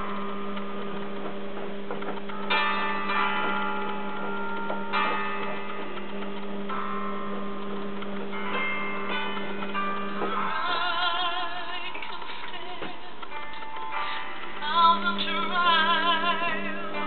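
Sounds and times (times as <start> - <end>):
bell-like music chords: 0.0 - 12.2
electrical mains hum: 0.0 - 17.0.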